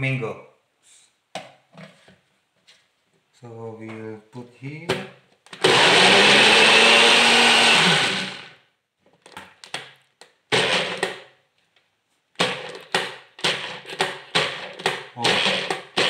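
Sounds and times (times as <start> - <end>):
blender motor whirring: 5.6 - 8.6, 10.5 - 11.1, 14.4 - 16.0.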